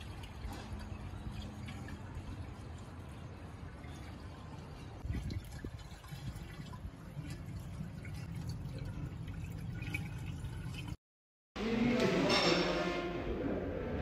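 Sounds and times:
water running and dripping: 0:00.0 - 0:11.0.

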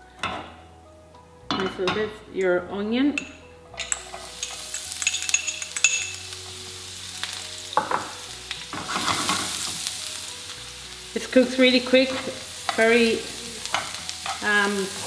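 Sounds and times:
onion sizzling in oil: 0:04.0 - 0:15.0.

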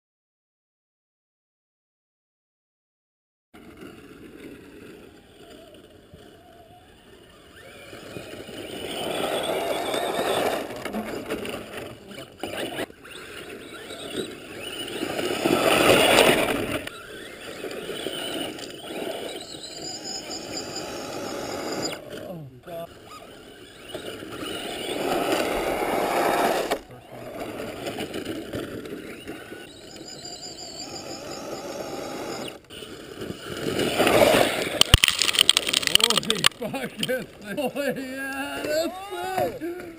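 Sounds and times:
rc truck motor and gear whine: 0:03.6 - 0:39.9
tyres rushing on sand: 0:06.4 - 0:19.5, 0:20.2 - 0:29.7.

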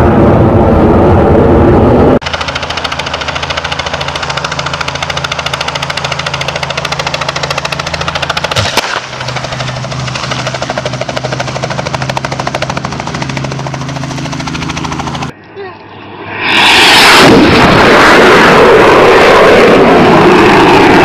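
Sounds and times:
helicopter rotor chopping: 0:02.0 - 0:21.0
power lines arcing crack: 0:02.2 - 0:13.4.

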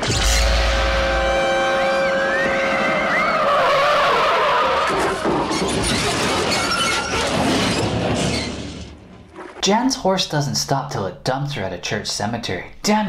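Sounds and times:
truck skidding squeal: 0:00.2 - 0:09.6.

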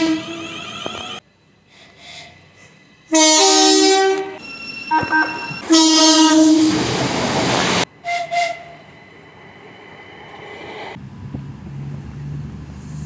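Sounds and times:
electric train two-tone horn: 0:00.0 - 0:01.2, 0:03.1 - 0:06.9, 0:08.0 - 0:08.9.

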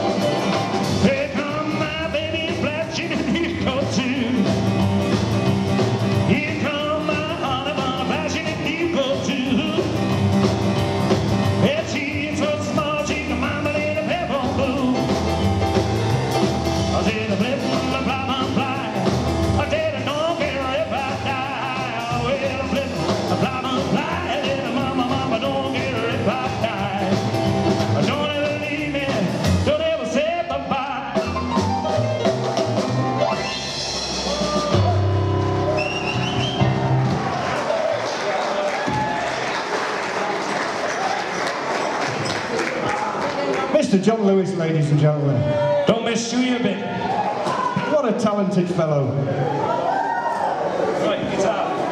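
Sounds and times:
drum kit: 0:00.0 - 0:39.8
boogie piano: 0:00.0 - 0:43.0.

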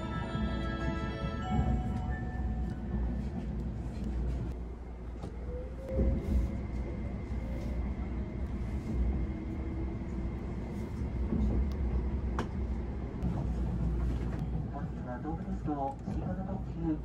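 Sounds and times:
train interior rumble and whine: 0:00.0 - 0:17.0.

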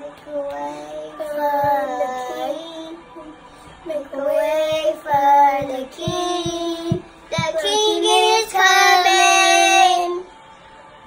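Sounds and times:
boys singing: 0:00.0 - 0:10.3
soft low thumps: 0:04.6 - 0:07.7.

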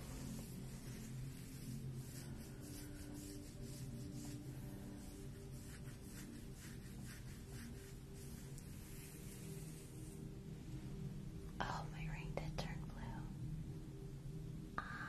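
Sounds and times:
fingers rustling through hair: 0:00.0 - 0:10.3.

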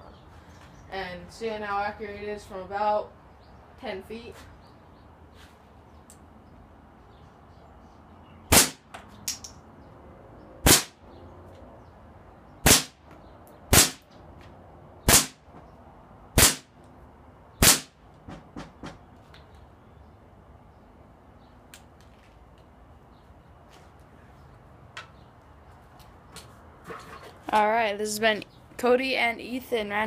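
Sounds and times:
airsoft pistol shots: 0:08.5 - 0:08.9, 0:10.6 - 0:11.0, 0:12.6 - 0:13.0, 0:13.7 - 0:14.0, 0:15.1 - 0:15.4, 0:16.4 - 0:16.7, 0:17.6 - 0:18.0.

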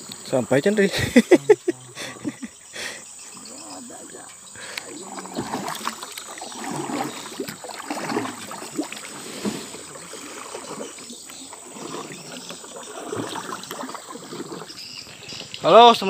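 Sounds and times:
water splashing: 0:00.8 - 0:16.0
paddle strokes in water: 0:03.3 - 0:15.7
water washing along hull: 0:03.3 - 0:15.9.

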